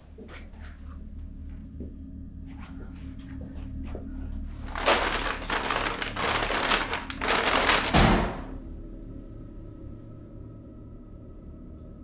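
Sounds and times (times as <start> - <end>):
dark ambient music drone: 0.0 - 12.0
loud rattling: 4.7 - 8.4.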